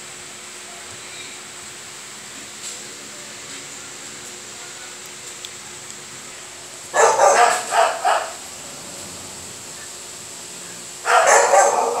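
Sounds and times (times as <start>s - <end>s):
puppy barking: 6.9s - 8.4s, 11.0s - 12.0s.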